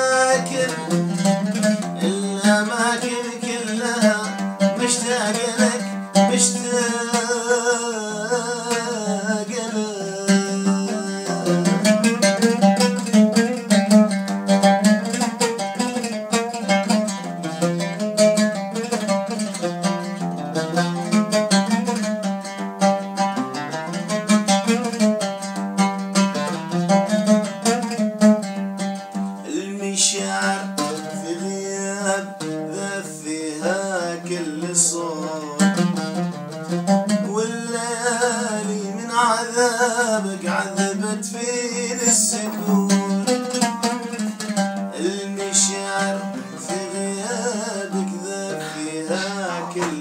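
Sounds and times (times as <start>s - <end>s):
solo oud melody: 0.0s - 50.0s.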